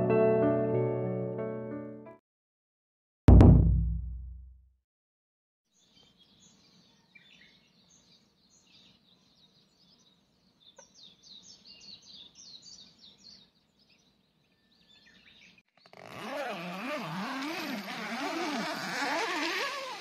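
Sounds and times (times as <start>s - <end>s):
birds chirping: 5.8s - 16.0s.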